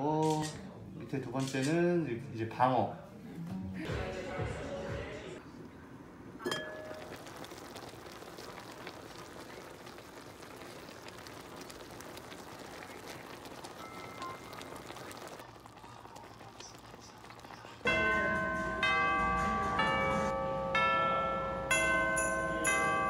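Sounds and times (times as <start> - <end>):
hot pot simmering: 6.1 - 20.7.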